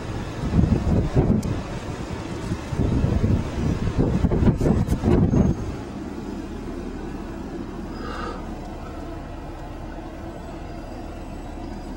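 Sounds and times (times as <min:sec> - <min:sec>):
wind buffeting microphone: 0:00.0 - 0:06.2
car engine and tyres rumbling: 0:00.0 - 0:11.9.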